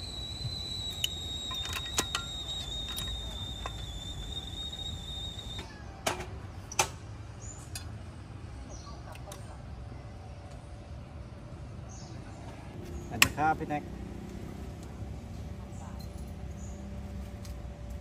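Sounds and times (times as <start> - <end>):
steady high-pitched tone: 0.0 - 5.7
espresso gear clicks and clinks: 0.8 - 4.7.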